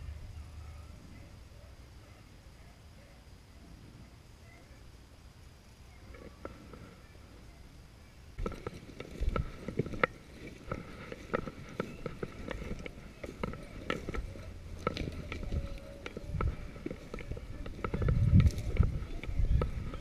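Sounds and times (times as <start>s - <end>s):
footsteps crunching through dry grass: 8.4s - 20.0s.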